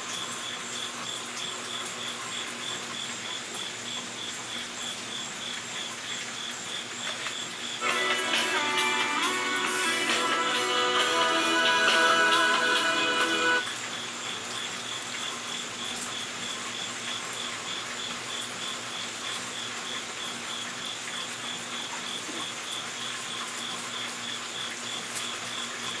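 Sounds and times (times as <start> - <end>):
cricket chirping: 0.0 - 7.9
background hiss: 7.6 - 13.6.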